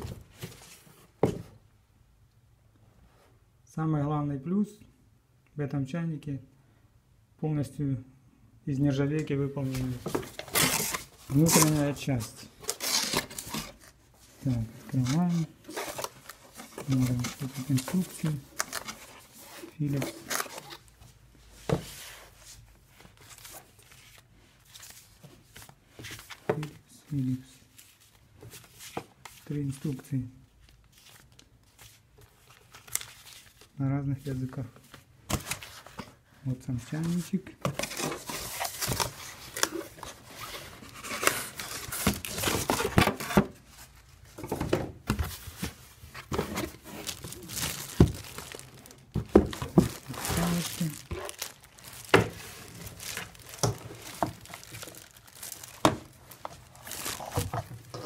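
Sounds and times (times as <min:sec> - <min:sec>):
faint handling noises: 0:08.9 - 0:58.0
paper booklets rustling and sliding: 0:09.6 - 0:36.2, 0:36.8 - 0:44.6, 0:45.2 - 0:58.0
plastic film crinkling: 0:14.5 - 0:20.9, 0:46.5 - 0:58.0.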